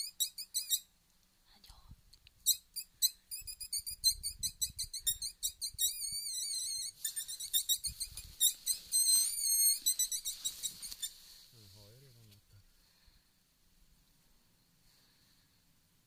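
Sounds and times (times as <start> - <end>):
predator call squeaks: 0.0 - 0.9, 2.4 - 11.2.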